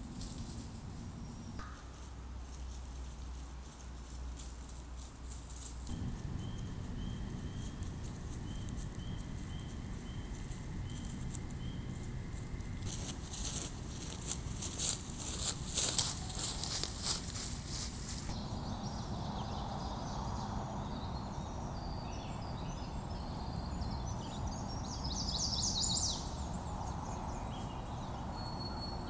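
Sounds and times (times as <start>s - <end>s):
rustling in leaf litter: 2.0s - 18.3s
bear crackling and clicking: 3.7s - 18.3s.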